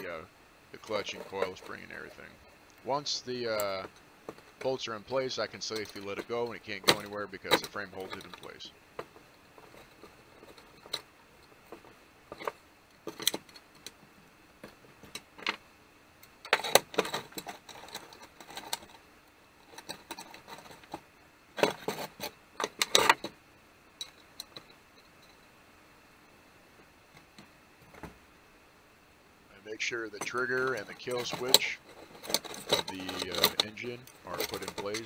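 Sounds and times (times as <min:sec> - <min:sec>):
metal parts and tools clinking: 0:30.2 - 0:35.0.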